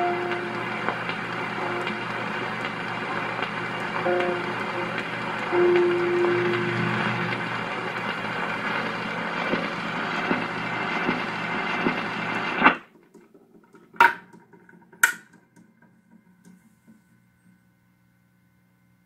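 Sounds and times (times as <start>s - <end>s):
record groove ticks: 0.0s - 8.8s, 9.4s - 12.7s
record surface hiss and crackle: 0.0s - 12.9s
faint hum: 1.6s - 9.4s.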